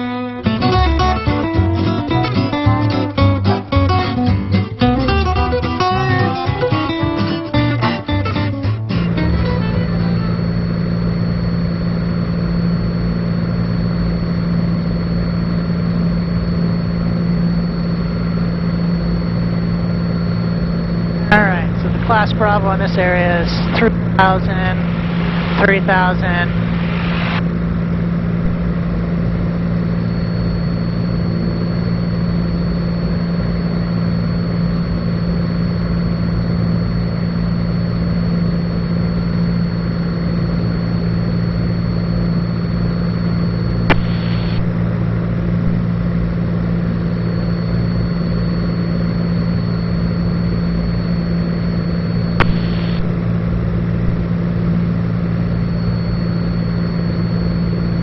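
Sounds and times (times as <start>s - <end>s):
aircraft engine droning: 0.0s - 58.0s
faint high whine: 8.7s - 58.0s
sharp clicks: 52.4s - 53.1s.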